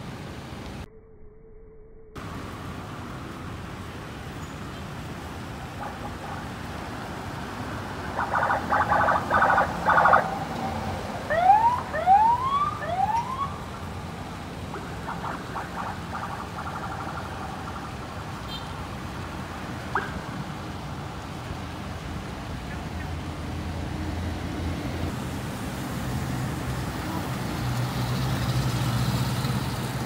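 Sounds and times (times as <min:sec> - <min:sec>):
road traffic noise: 0:02.2 - 0:30.0
electronic vehicle siren: 0:08.0 - 0:13.7, 0:14.7 - 0:18.2.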